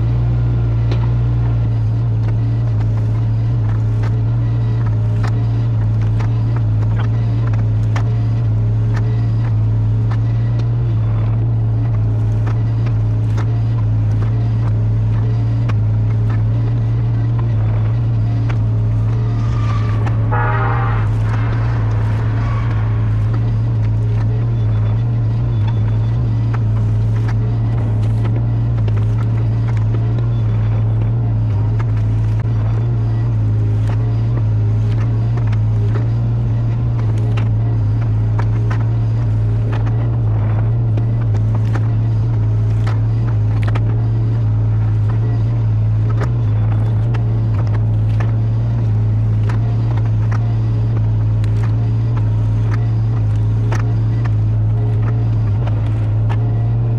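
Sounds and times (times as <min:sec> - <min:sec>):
diesel engine droning: 0:00.0 - 0:56.9
rake dragging through brush: 0:18.6 - 0:25.2.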